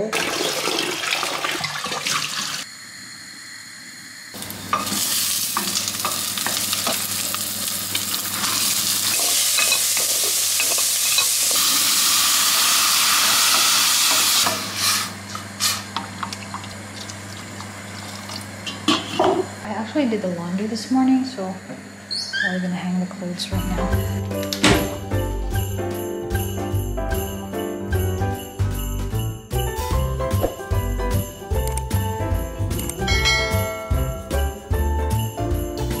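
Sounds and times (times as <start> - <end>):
bacon and onion sizzling: 4.4 - 19.6.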